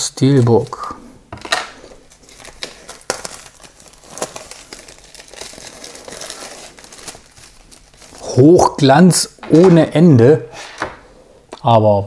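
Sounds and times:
packaging crinkling: 0:01.5 - 0:08.5.

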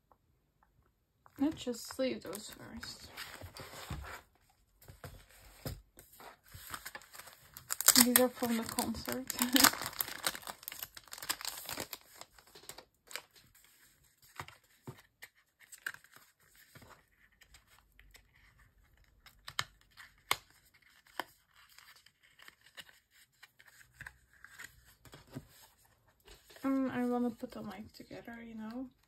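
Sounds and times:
plastic sleeves crinkling: 0:05.0 - 0:14.6.

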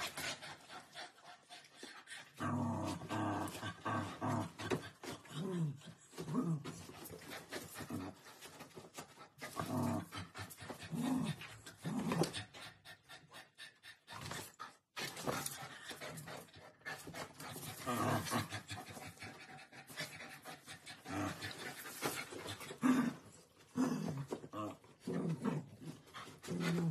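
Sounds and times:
dog panting: 0:00.0 - 0:02.4, 0:06.9 - 0:22.9.

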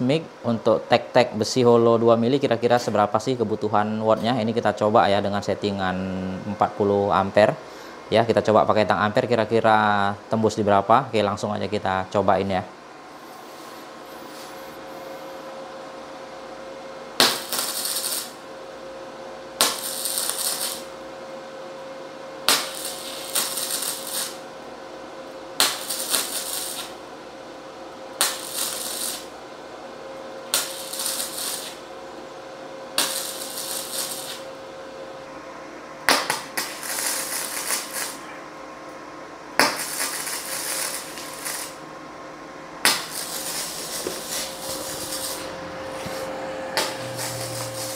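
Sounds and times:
steady hum: 0:00.0 - 0:47.9
welding arc crackling: 0:17.2 - 0:18.4, 0:19.6 - 0:21.0, 0:22.4 - 0:24.5, 0:25.5 - 0:27.1, 0:28.1 - 0:29.4, 0:30.5 - 0:31.9, 0:32.9 - 0:34.5, 0:36.2 - 0:38.2, 0:39.6 - 0:41.8, 0:42.8 - 0:47.9.

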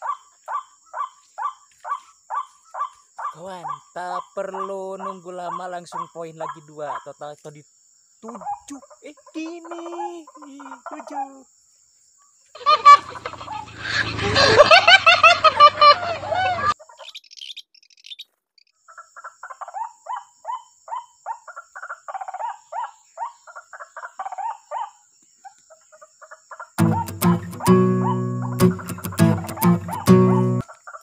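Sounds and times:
waterhens calling: 0:12.6 - 0:17.2, 0:26.8 - 0:30.6.

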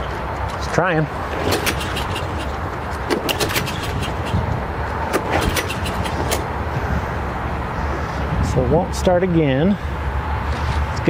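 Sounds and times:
lawn mower engine sputtering: 0:00.5 - 0:06.6.

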